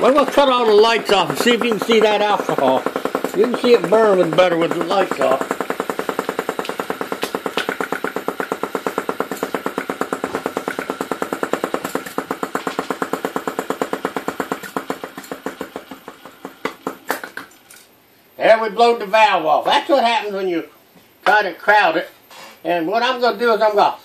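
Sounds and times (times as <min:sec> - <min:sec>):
model engine clattering: 0:00.0 - 0:17.8.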